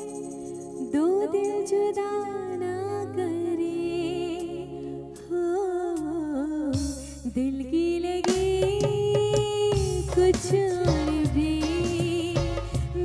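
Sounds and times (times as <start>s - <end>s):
woman singing into microphone: 0.0s - 13.0s
soft band accompaniment with bass: 8.2s - 13.0s.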